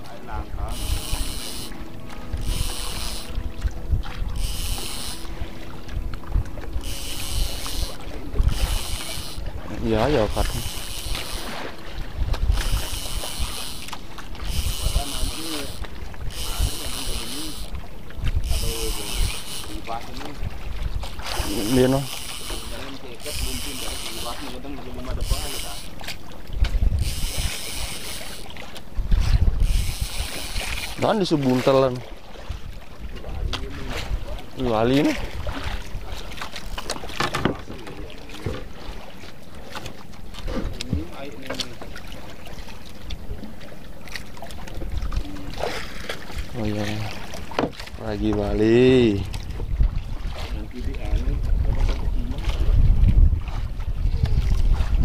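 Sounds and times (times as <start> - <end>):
low wind: 0.0 - 55.0
water rumble: 0.0 - 55.0
fishing reel whirring: 0.2 - 32.0, 33.9 - 38.7
knocks from handling line: 36.8 - 38.6, 47.5 - 47.9.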